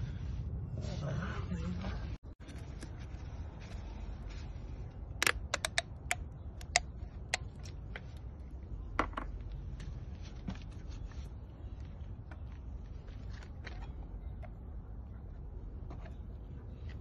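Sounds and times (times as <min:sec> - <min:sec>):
plastic bottle cap clicking: 0:05.2 - 0:07.5.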